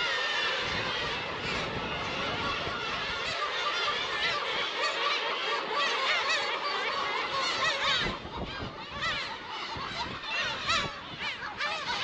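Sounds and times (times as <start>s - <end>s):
gulls calling: 0.0s - 12.0s.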